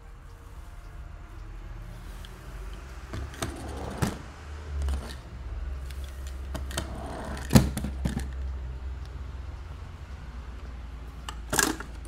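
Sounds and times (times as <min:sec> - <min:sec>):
low steady hum: 0:00.0 - 0:12.0
toy cars clicking and knocking: 0:02.2 - 0:04.2, 0:05.8 - 0:08.5, 0:11.2 - 0:12.0.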